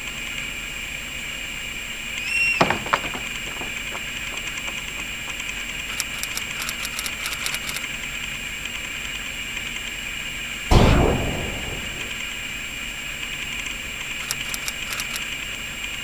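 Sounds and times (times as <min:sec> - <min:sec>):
sharp knocks: 0:02.6 - 0:05.1
light rapid ticks: 0:04.3 - 0:08.0, 0:14.0 - 0:15.5
steady high hum: 0:10.7 - 0:16.0.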